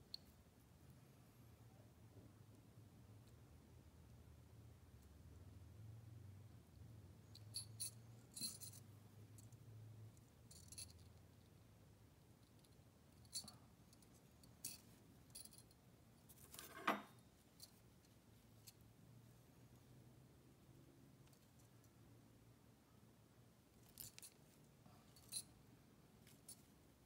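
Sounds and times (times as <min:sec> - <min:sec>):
faint low hum: 0:00.0 - 0:27.0
metallic clink: 0:07.2 - 0:09.5.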